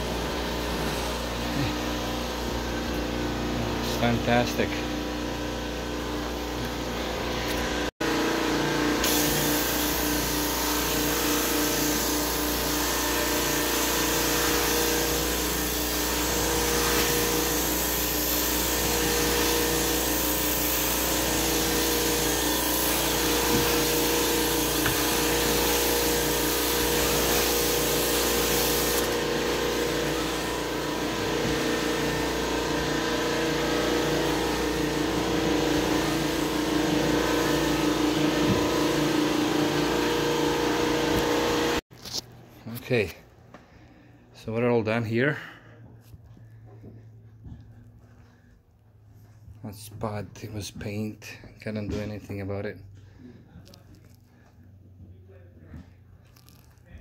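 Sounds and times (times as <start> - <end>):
carpet cleaning machine humming: 0.0 - 41.8
loud hiss: 9.0 - 29.2.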